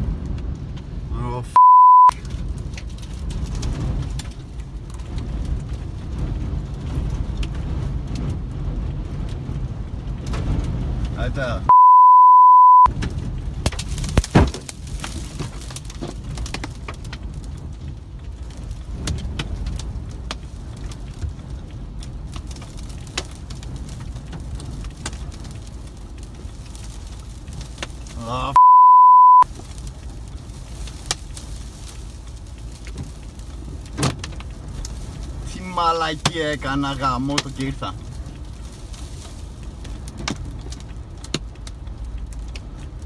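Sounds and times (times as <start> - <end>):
strong winds buffeting a car: 0.0 - 1.5, 2.1 - 11.7, 12.9 - 28.5, 29.4 - 43.0
censor bleeps: 1.5 - 2.1, 11.7 - 12.9, 28.5 - 29.4
debris knocking on car: 12.9 - 17.4, 30.4 - 35.0.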